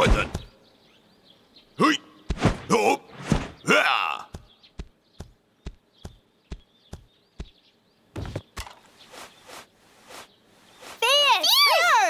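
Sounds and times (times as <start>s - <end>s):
cartoon footsteps: 2.3s - 7.6s, 8.2s - 11.2s.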